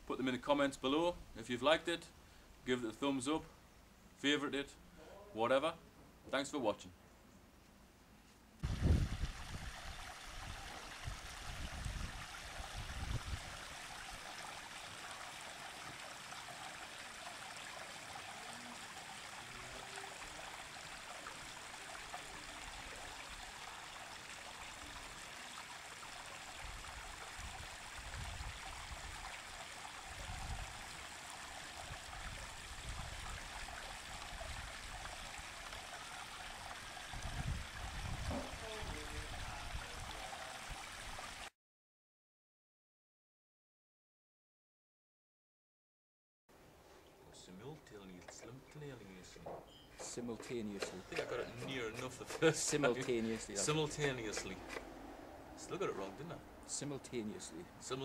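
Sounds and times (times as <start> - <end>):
water trickling into pond: 8.6 - 41.5, 49.7 - 58.0.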